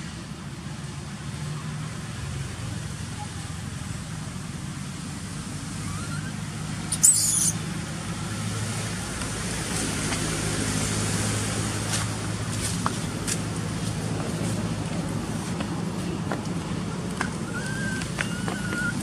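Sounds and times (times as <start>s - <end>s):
low engine hum: 0.0s - 19.0s
high-pitched wavering squeal: 5.8s - 7.6s.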